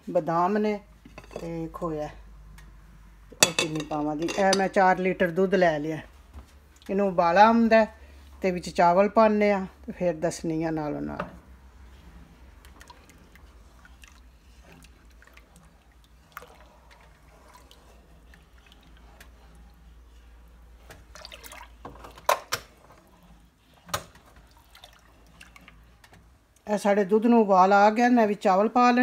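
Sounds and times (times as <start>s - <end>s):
spatula knocking metal pot: 3.4s - 4.7s
spatula stirring milk in pot: 11.8s - 22.2s.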